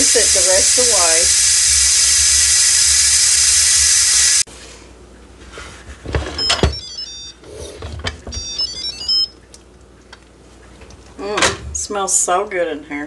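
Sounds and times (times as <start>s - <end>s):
steam valve hissing: 0.0s - 4.5s.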